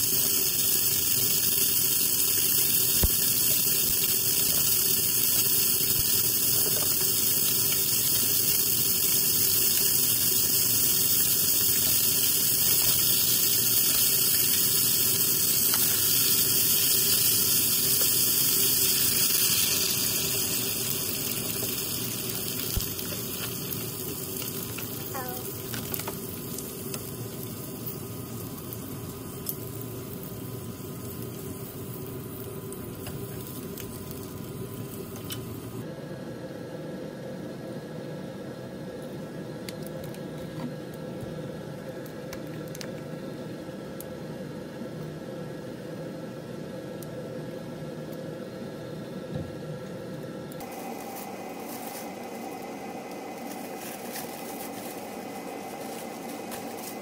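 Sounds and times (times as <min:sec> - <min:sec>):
meat sizzling in a pot: 0:00.0 - 0:35.9, 0:50.6 - 0:57.0.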